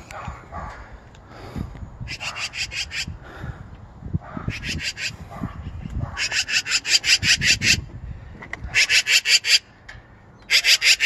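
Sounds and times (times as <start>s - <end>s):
magpie rattling chatter: 2.1s - 3.1s, 4.5s - 7.8s, 8.7s - 9.7s, 10.4s - 11.0s.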